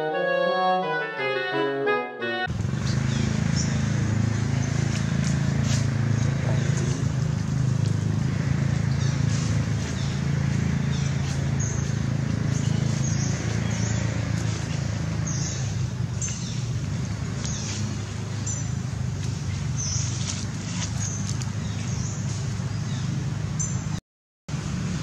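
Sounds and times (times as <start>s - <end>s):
low outdoor hum: 2.5s - 23.7s.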